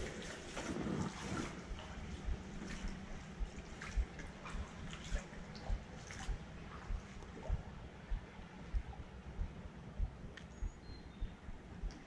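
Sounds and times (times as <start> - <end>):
creek water trickling and splashing: 0.0 - 8.0
footsteps in water: 0.0 - 8.9.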